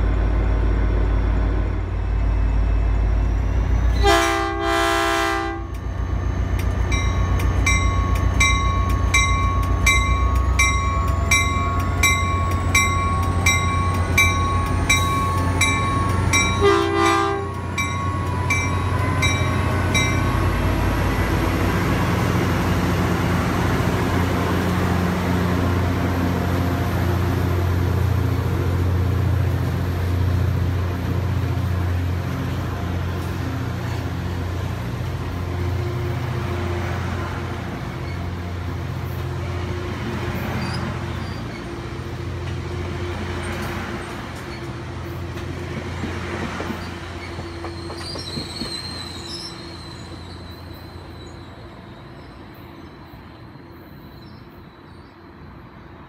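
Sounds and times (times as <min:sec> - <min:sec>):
diesel locomotive engine hum: 0:00.0 - 0:56.0
train coaches rolling past: 0:00.0 - 0:56.0
brief high squeal: 0:46.8 - 0:52.4.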